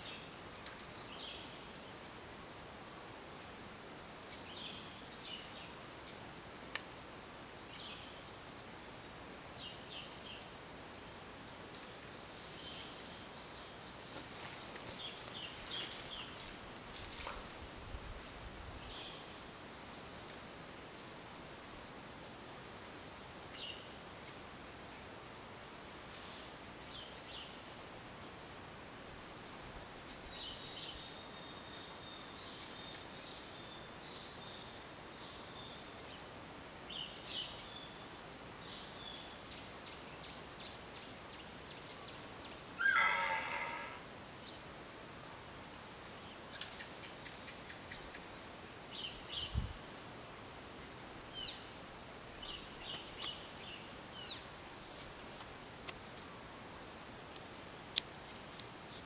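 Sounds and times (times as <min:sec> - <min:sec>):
birds chirping: 0:00.0 - 0:24.4, 0:46.0 - 0:59.0
low animal call: 0:42.8 - 0:44.1.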